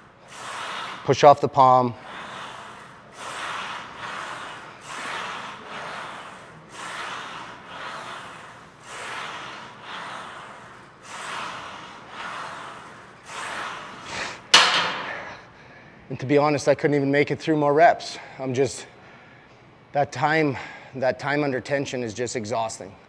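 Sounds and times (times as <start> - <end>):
man breathing hard: 0.0 - 1.2, 1.8 - 16.1.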